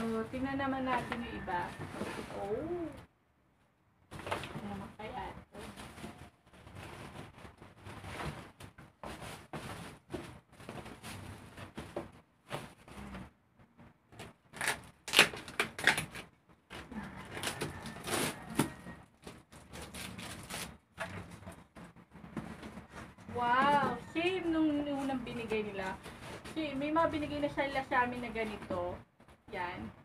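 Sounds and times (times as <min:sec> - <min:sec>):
packing tape peeling off box: 0:14.2 - 0:16.3
plastic wrapping crinkling: 0:14.2 - 0:21.6.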